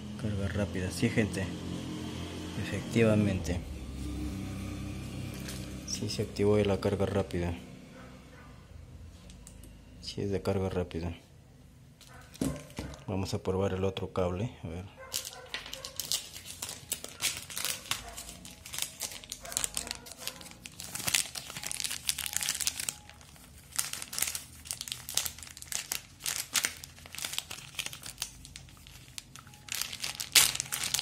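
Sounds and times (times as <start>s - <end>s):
plastic bags crinkling: 15.0s - 31.0s.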